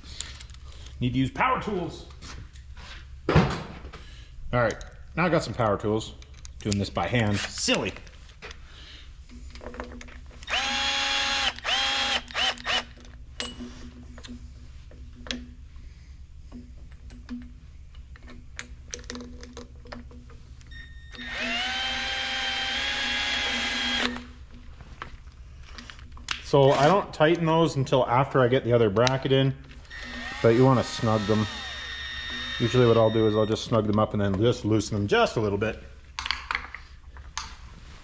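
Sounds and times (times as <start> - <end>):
tools clicking: 9.5 - 13.6, 16.9 - 24.6
power drill whining: 10.4 - 13.0, 21.1 - 24.3, 29.8 - 33.7.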